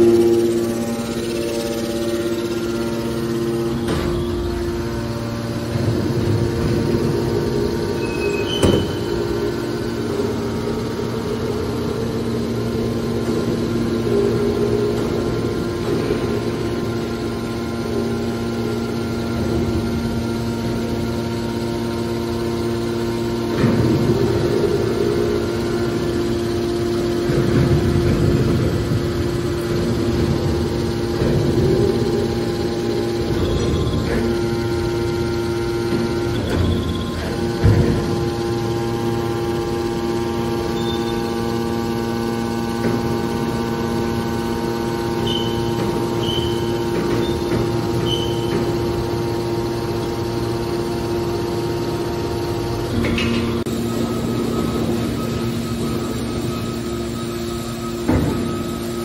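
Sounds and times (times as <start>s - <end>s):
hydraulic pump motor humming: 0.0s - 59.0s.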